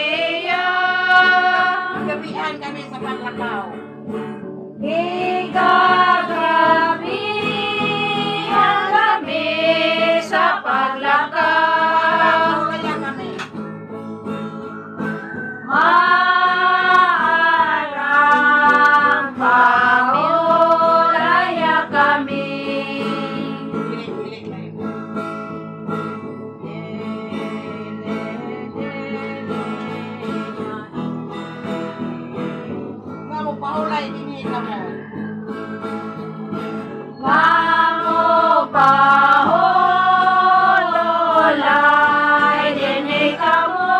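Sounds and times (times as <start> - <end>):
voices singing slow song: 0.0 - 2.4, 4.8 - 13.1, 15.0 - 24.0, 26.6 - 31.2, 35.1 - 43.9
strummed acoustic guitar: 0.0 - 43.9.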